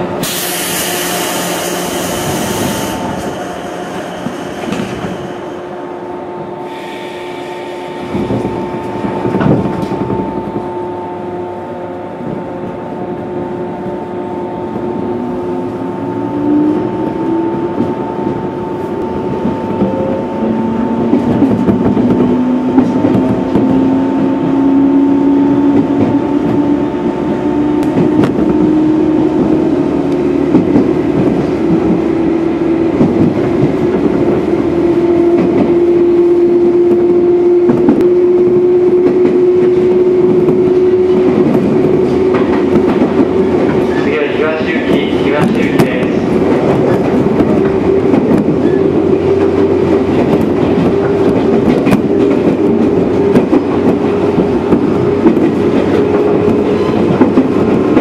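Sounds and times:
train running noise: 0.0 - 58.0.

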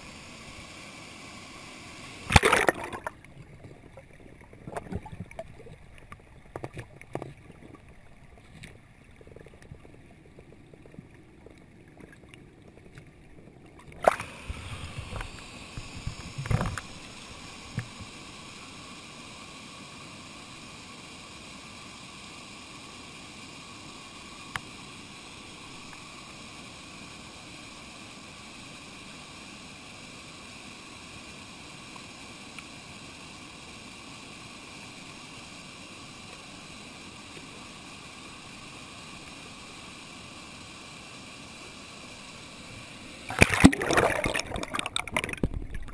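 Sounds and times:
water splashing: 2.2 - 9.9, 13.8 - 18.1, 43.3 - 45.9
muffled underwater clicks and knocks: 2.3 - 9.9, 13.8 - 17.0, 17.7 - 18.1, 43.3 - 45.9.

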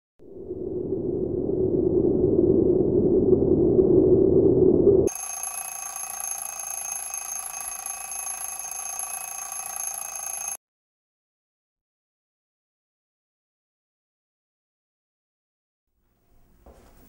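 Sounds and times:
low rushing drone: 0.2 - 5.1.

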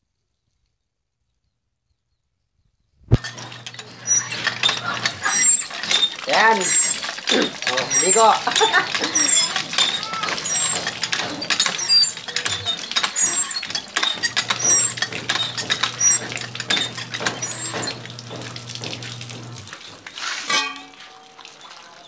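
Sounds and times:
hose water splattering on concrete: 3.1 - 22.0.

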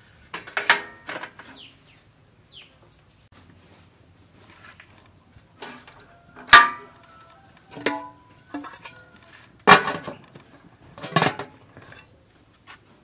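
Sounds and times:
metal pot lid and tray clanking: 0.4 - 1.6, 5.6 - 7.0, 7.7 - 10.4, 11.0 - 12.1.

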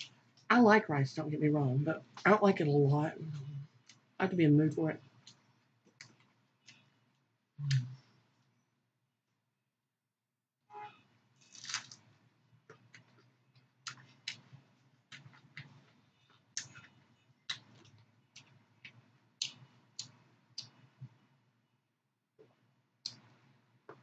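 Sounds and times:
crisp chewing of lettuce: 11.4 - 12.0.

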